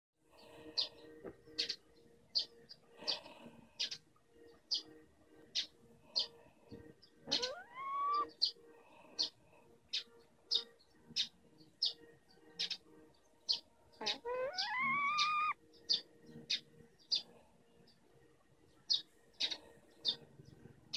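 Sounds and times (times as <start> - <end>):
bird chirping: 0.4 - 18.0
long rising animal calls: 7.3 - 8.3, 14.0 - 15.6.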